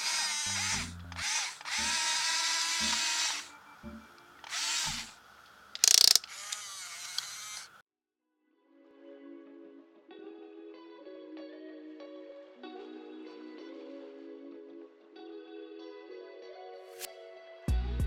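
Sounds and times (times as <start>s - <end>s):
toy electric motors whining: 0.0s - 7.8s.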